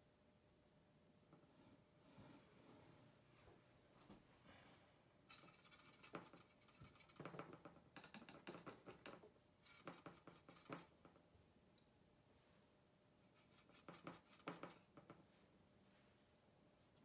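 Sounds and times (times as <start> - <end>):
paintbrush scrubbing: 5.3 - 11.0, 13.2 - 16.1.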